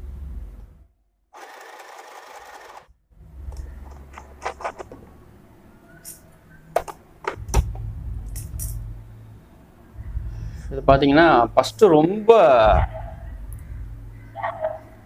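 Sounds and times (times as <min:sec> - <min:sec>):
sewing machine stitching: 0:01.4 - 0:02.9.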